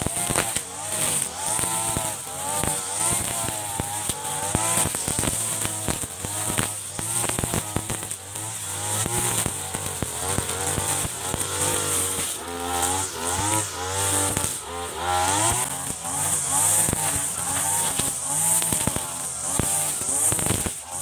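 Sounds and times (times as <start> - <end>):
brush cutter engine cutting grass: 0.0 - 21.0.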